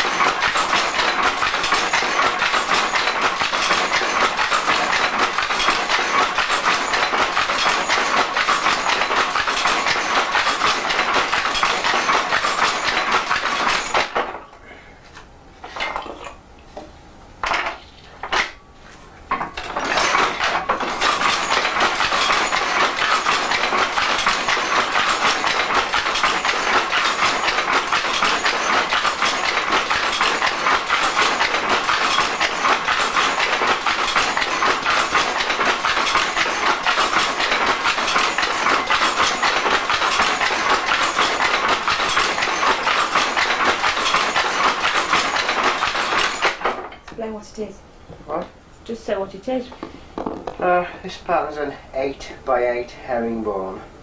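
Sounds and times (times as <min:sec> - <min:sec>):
loom clattering: 0:00.0 - 0:14.5, 0:15.6 - 0:16.4, 0:17.4 - 0:47.3
knocks: 0:49.8 - 0:50.7.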